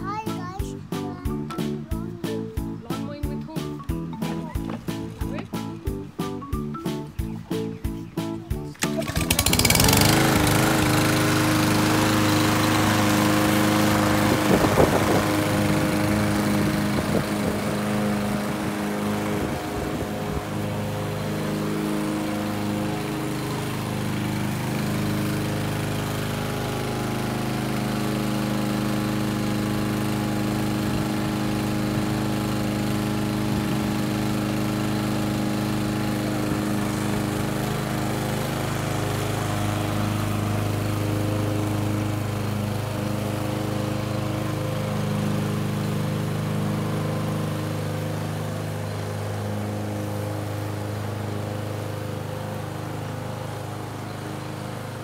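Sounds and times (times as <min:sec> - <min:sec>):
lawn mower engine running: 0:00.0 - 0:55.0.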